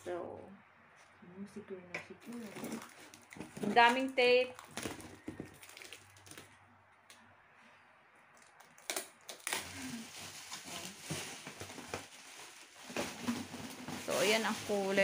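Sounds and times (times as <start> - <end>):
bubble wrap crinkling: 2.2 - 6.6, 8.4 - 15.0.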